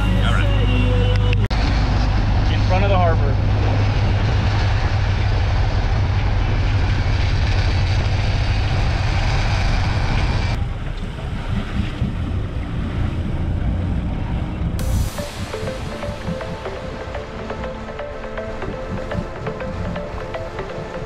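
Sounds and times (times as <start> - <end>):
wind and water rushing: 14.8 - 21.0.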